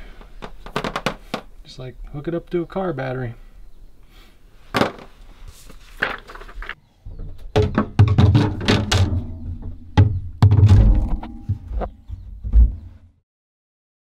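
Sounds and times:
rattles and dull thumps: 0:00.2 - 0:01.5, 0:06.0 - 0:13.0
wire baskets clattering: 0:07.6 - 0:11.9.

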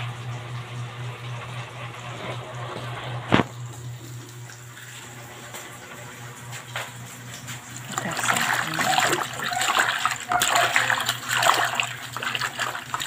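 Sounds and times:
hand swishing leaves in water: 0:07.5 - 0:13.0.

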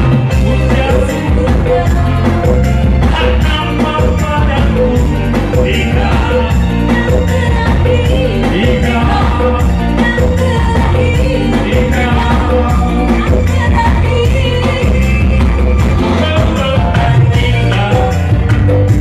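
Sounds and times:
electronic keyboard music: 0:00.0 - 0:19.0
heavy bass beat: 0:00.0 - 0:19.0
person singing into microphone: 0:00.0 - 0:19.0.

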